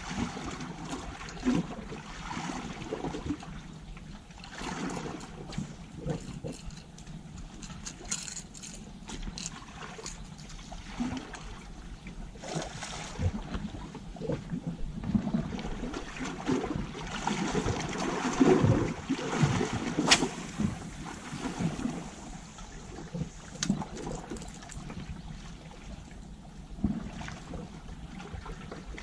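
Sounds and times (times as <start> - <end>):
waves lapping on rocks: 15.1 - 25.2.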